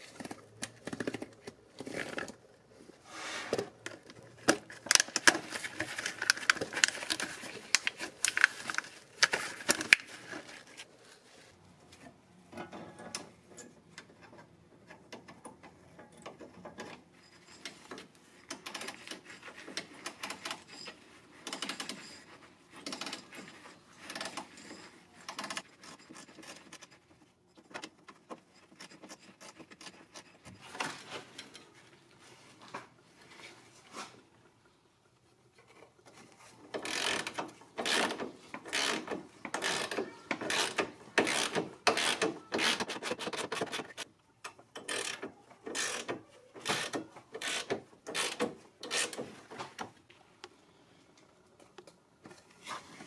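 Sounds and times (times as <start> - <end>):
metal tools clicking and rattling: 12.6 - 31.7.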